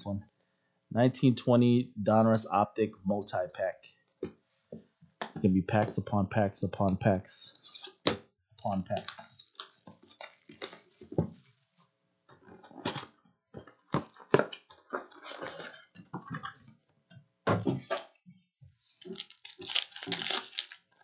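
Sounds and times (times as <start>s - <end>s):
shrink wrap crinkling and tearing: 9.0s - 11.1s, 19.0s - 21.0s
cellophane packs rustling: 9.0s - 11.7s, 19.0s - 21.0s.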